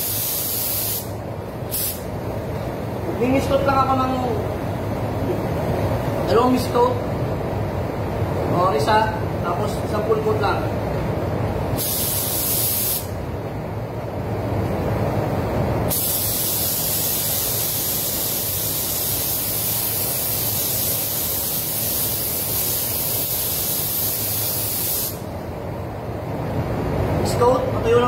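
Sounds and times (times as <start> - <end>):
spray gun hissing: 0.0 - 2.1, 11.8 - 13.2, 15.9 - 25.3.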